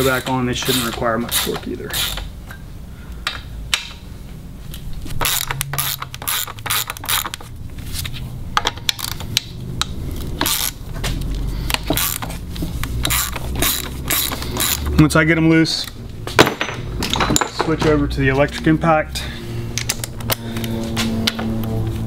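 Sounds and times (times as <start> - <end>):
ratchet clicking: 0.0 - 2.3, 5.2 - 7.5, 8.9 - 10.8, 11.6 - 14.9.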